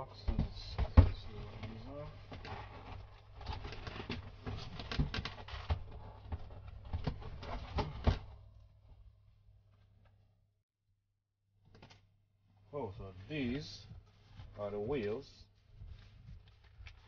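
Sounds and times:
cardboard boxes being handled: 0:00.2 - 0:08.5.

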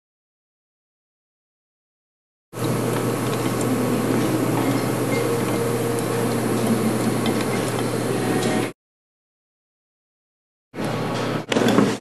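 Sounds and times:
printing press running: 0:02.6 - 0:08.7.

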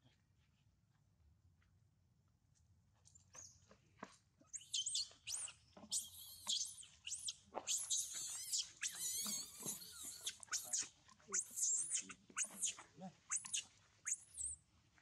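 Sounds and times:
baby monkey screaming: 0:04.5 - 0:14.5.

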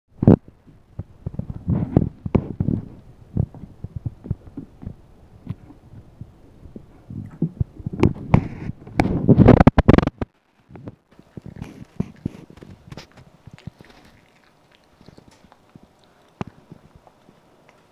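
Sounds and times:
monkey gnawing plastic cup: 0:07.9 - 0:17.9.

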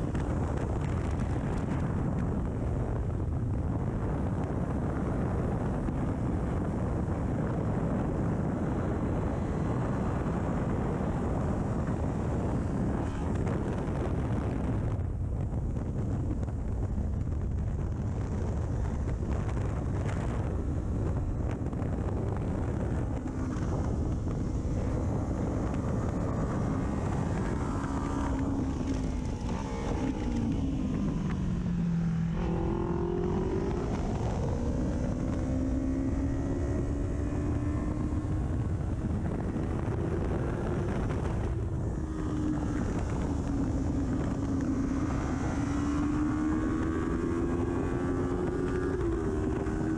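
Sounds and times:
wind rush: 0:00.0 - 0:49.9
motorcycle engine: 0:16.2 - 0:49.9.

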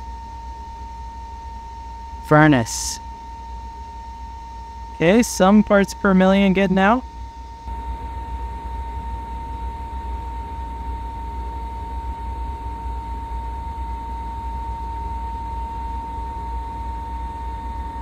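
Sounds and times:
high-pitched tone: 0:02.3 - 0:03.0.

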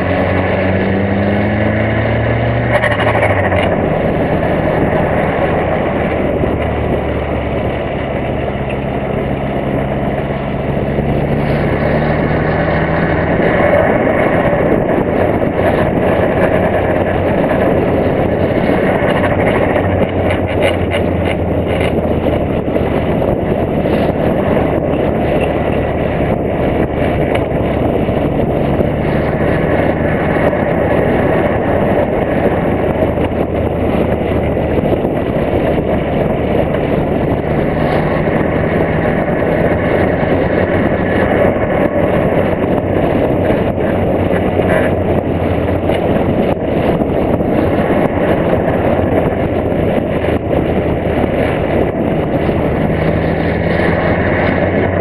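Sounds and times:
car engine running: 0:00.0 - 0:55.0
wind and road noise: 0:00.0 - 0:55.0.

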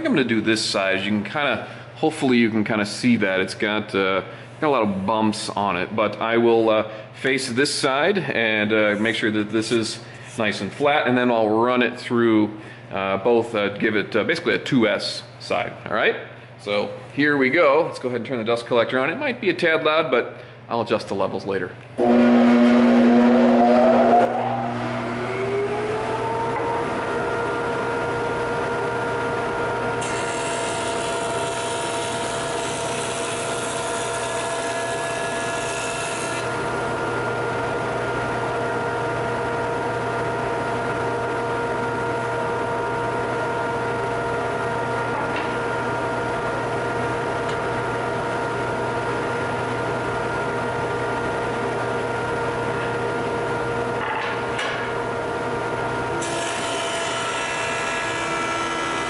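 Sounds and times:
dust collector running: 0:22.0 - 0:52.7, 0:54.6 - 0:59.0
jointer running: 0:29.8 - 0:37.1, 0:56.2 - 0:59.0.

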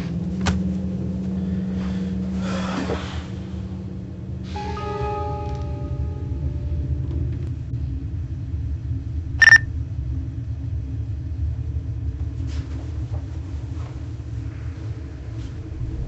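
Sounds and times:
steady low rumble: 0:00.0 - 0:16.0
phone text alert beep: 0:09.4 - 0:09.6.

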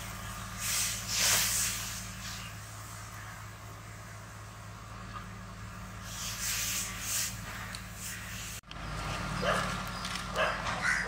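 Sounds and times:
boiling water splashing and hissing: 0:00.0 - 0:03.5, 0:06.0 - 0:08.6
dog barking: 0:09.4 - 0:11.0.

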